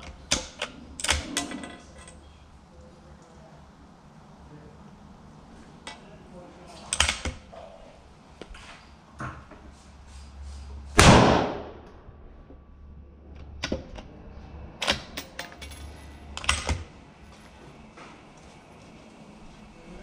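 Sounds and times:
rifle shot with echo: 11.0s - 11.8s.

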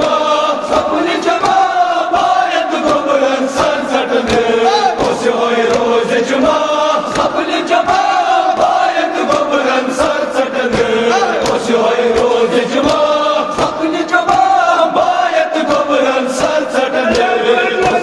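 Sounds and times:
men chanting in unison: 0.0s - 18.0s
hands beating on chests: 7.1s - 15.1s, 16.4s - 18.0s.

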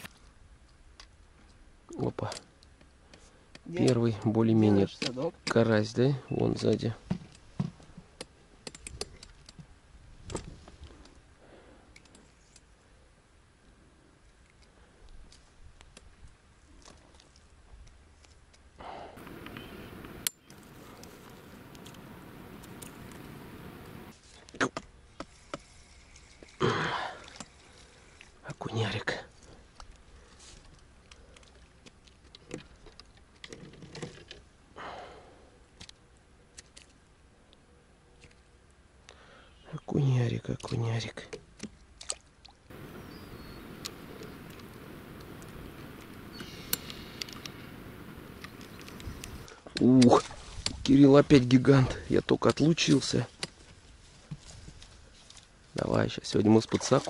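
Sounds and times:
soft rustle: 13.7s - 26.6s, 29.2s - 34.5s, 42.7s - 57.0s.

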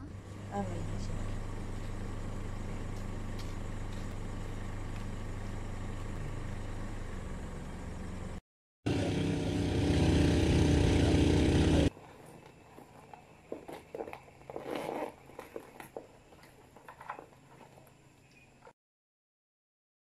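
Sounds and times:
vehicle engine running: 0.0s - 13.9s.

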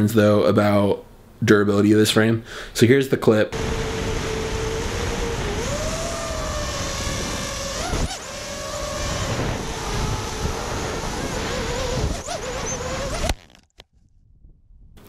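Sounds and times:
wind rush: 3.6s - 13.3s
quadcopter motors whining: 3.6s - 13.5s.

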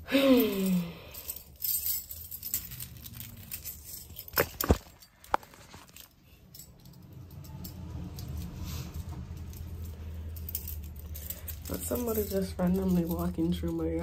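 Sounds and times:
low rumble: 6.2s - 11.8s.

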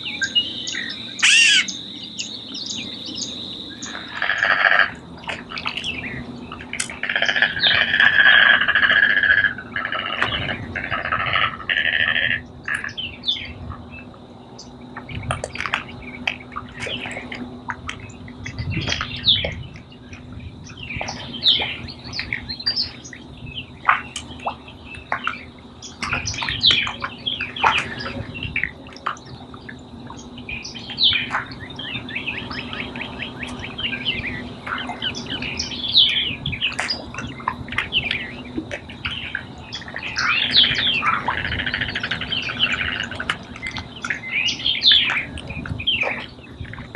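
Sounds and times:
birds chirping and whistling: 0.0s - 17.3s, 17.9s - 46.9s.

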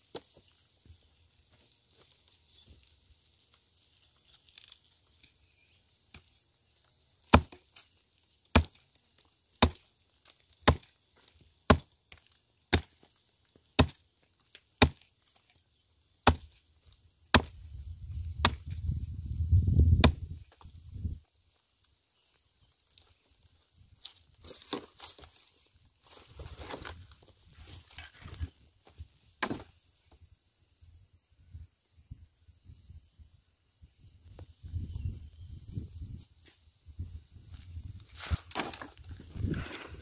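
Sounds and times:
hatchet chopping bamboo: 7.2s - 7.8s, 8.5s - 8.9s, 9.6s - 9.9s, 10.6s - 11.0s, 11.6s - 13.1s, 13.7s - 14.0s, 14.6s - 15.1s, 16.2s - 16.6s, 17.3s - 17.6s, 18.4s - 18.7s, 20.0s - 20.2s.

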